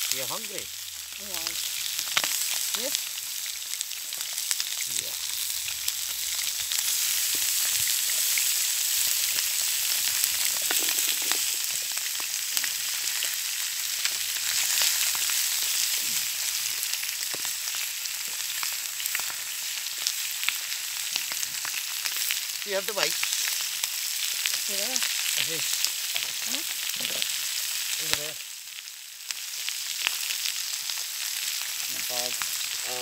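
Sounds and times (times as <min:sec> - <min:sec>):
chicken sizzling in a pan: 0:00.0 - 0:33.0
fat popping and spitting: 0:10.5 - 0:11.8.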